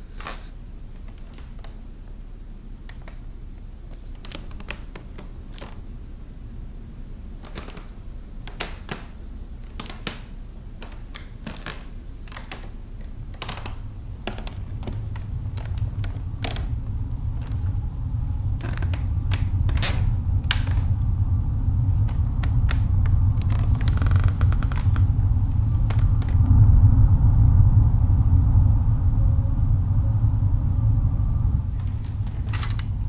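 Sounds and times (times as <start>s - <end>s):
low rumbling drone: 5.8s - 33.0s
clicks and taps: 8.5s - 16.7s.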